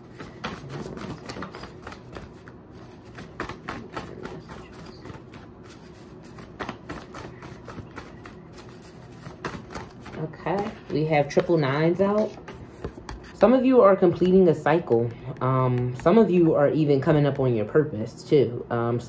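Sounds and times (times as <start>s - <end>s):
cards being shuffled: 0.0s - 13.4s.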